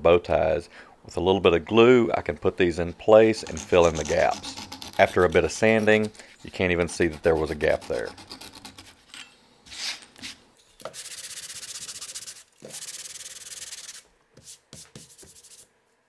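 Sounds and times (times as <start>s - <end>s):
hand saw strokes: 3.3s - 9.0s
sanding block rubbing wood: 3.4s - 9.0s.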